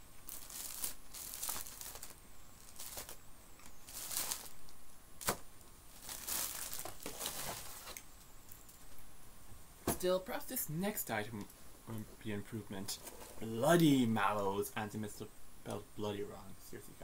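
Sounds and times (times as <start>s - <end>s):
plastic packaging crinkling: 0.3s - 8.0s.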